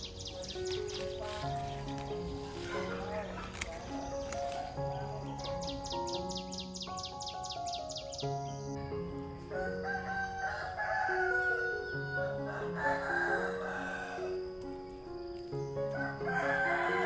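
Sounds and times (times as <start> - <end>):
soft music of held notes: 0.0 - 17.0
rooster crowing: 9.6 - 14.5, 15.9 - 17.0.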